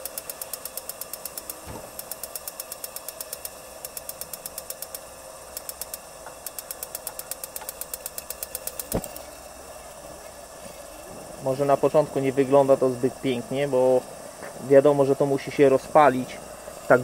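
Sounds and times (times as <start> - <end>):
spark igniter clicking rapidly: 0.0 - 9.3
faint steady hiss: 0.0 - 17.0
soft thud of fuel igniting: 1.6 - 2.0, 8.9 - 9.2.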